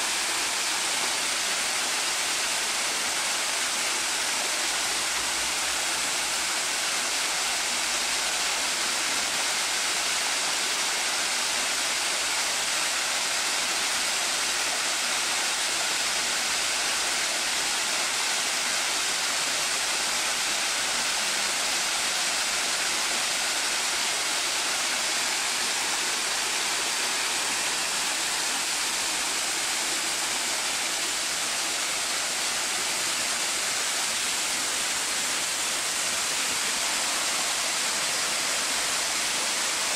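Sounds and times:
waterfall splashing into pond: 0.0 - 39.9.

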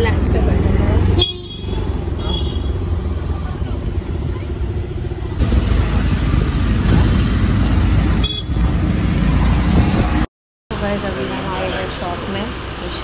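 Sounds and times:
engine and road rumble: 0.0 - 13.0.

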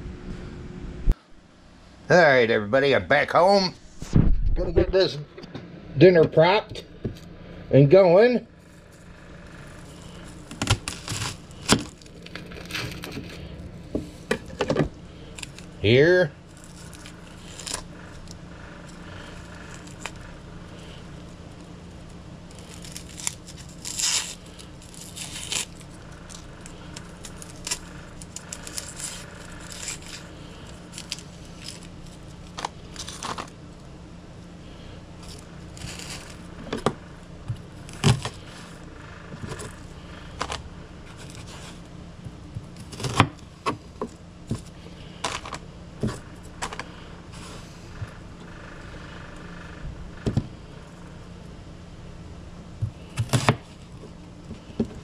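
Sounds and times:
steady low hum: 0.0 - 55.0
onion skin crackling and tearing: 9.8 - 13.8, 15.2 - 15.8, 16.4 - 34.0, 35.2 - 41.9.

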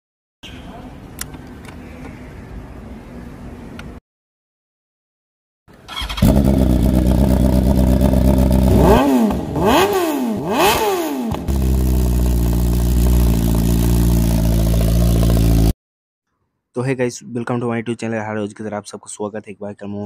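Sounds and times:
motorcycle engine idling and revving: 5.9 - 15.8.

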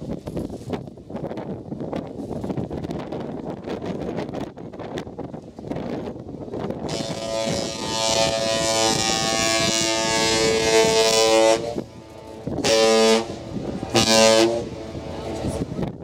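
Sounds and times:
ship horn blasts: 6.8 - 15.8.

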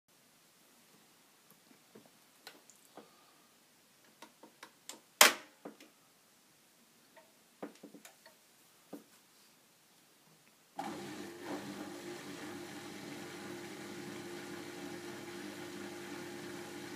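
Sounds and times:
washing machine hum: 10.8 - 16.9.

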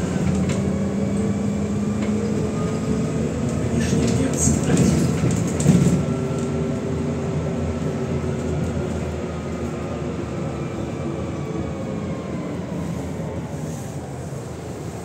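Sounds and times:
bus engine and road rumble: 0.0 - 15.0.

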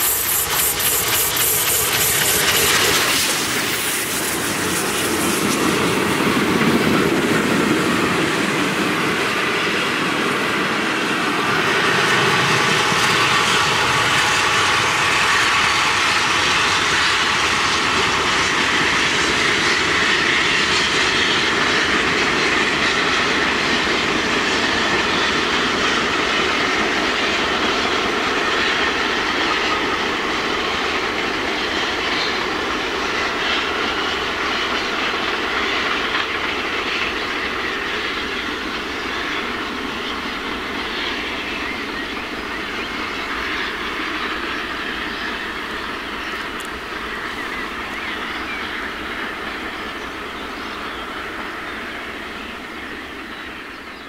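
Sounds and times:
train wheels clattering on rails: 0.0 - 54.0.

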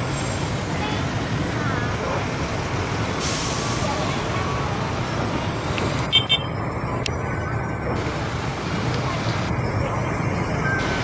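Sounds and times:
air brakes hissing: 0.0 - 0.7, 3.1 - 4.2
truck engines rumbling: 0.0 - 11.0.

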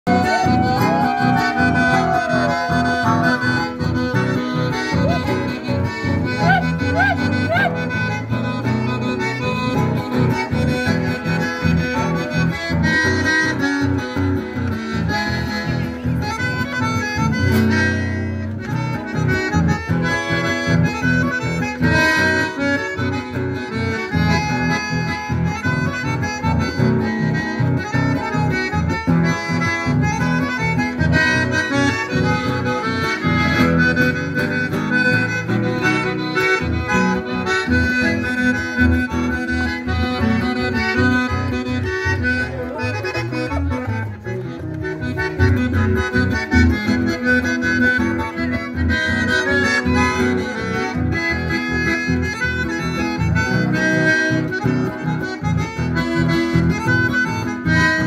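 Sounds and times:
guitars: 0.0 - 58.0
violin: 0.0 - 58.0
reedy melody line: 0.1 - 58.0.

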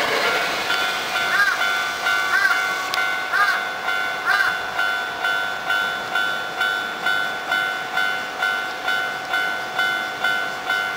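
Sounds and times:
level crossing warning bell: 0.0 - 10.9.

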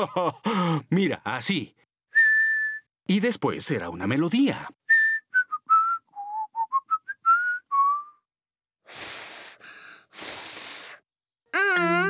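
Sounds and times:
person whistling a tune: 2.1 - 2.9, 4.9 - 8.3.

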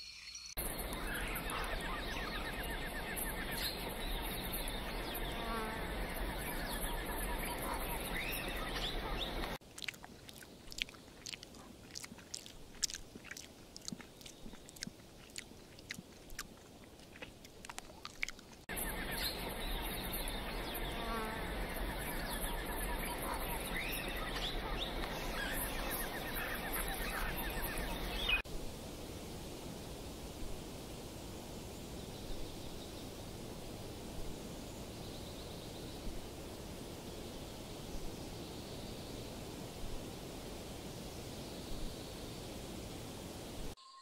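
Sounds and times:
birds chirping and trilling: 0.0 - 9.6, 18.7 - 28.4
water splashing over rocks: 9.3 - 18.7.

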